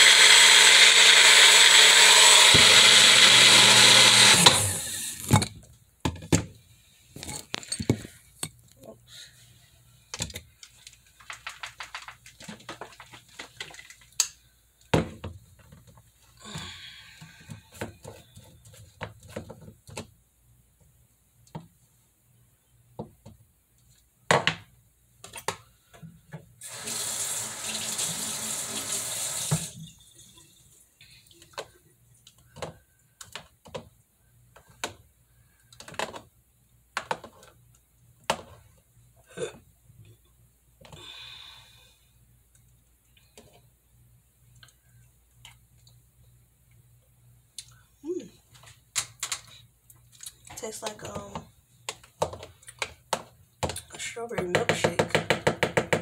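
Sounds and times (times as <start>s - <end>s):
faucet running into sink: 26.6s - 30.6s.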